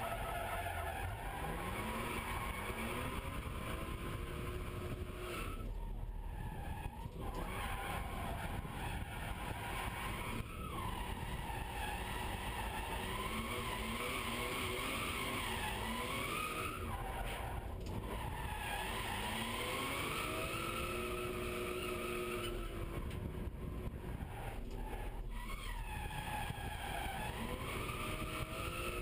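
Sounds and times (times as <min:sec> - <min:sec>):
car engine revving: 0:01.2 - 0:05.8, 0:06.6 - 0:17.1, 0:17.8 - 0:29.0.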